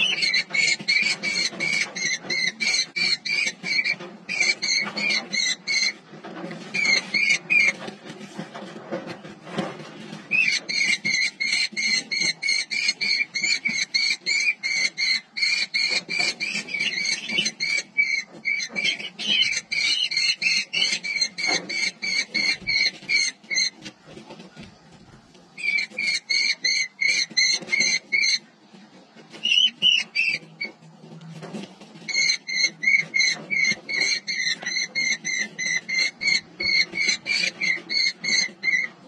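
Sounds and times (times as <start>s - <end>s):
kestrels calling shrill notes: 0.0s - 6.0s, 10.3s - 23.8s, 25.6s - 28.5s, 29.3s - 30.8s, 32.0s - 39.0s.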